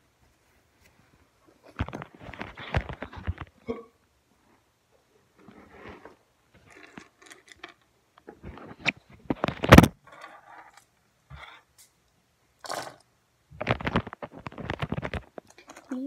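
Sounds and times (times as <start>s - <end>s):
handling knocks clicks and scrapes: 13.6s - 16.0s.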